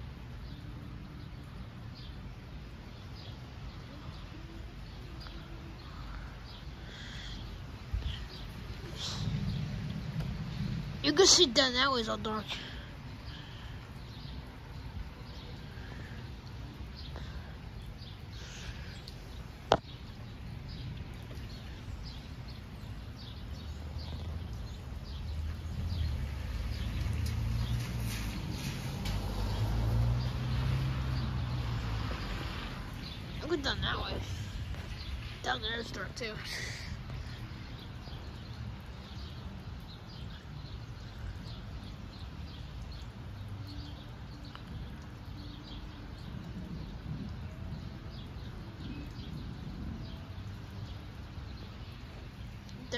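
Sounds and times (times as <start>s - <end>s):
small songbirds chirping: 0.0s - 52.9s
steady low rumble: 7.7s - 11.6s.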